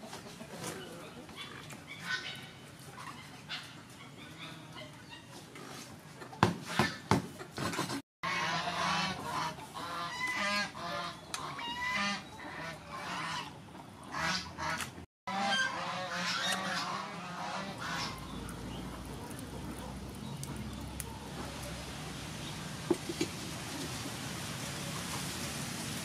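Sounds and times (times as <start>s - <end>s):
waterfowl honking: 8.2s - 20.6s.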